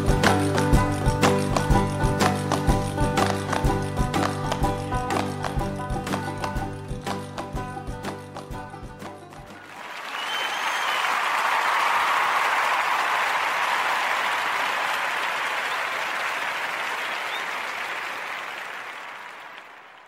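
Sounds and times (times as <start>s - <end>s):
crowd applauding: 0.0s - 6.9s, 9.2s - 20.0s
whistle: 9.9s - 12.6s, 15.5s - 16.2s, 16.8s - 17.9s.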